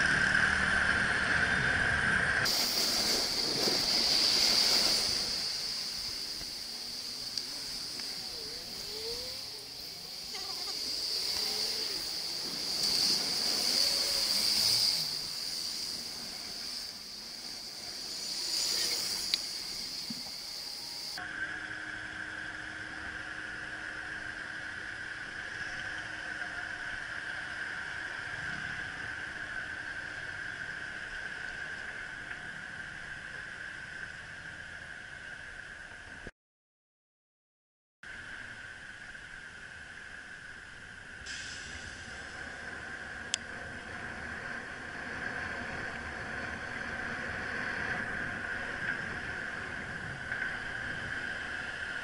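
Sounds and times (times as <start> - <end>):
wind noise: 0.0 - 21.2, 38.5 - 52.0
high-pitched motor whine: 0.0 - 35.5
slow city traffic: 0.0 - 36.3, 38.1 - 52.0.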